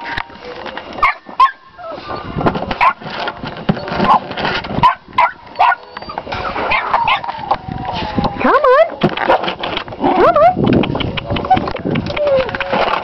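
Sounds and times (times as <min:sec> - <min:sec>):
dogs barking: 0:01.0 - 0:02.2, 0:02.8 - 0:03.0, 0:04.0 - 0:07.6
dogs whining: 0:01.0 - 0:03.0, 0:03.7 - 0:08.9.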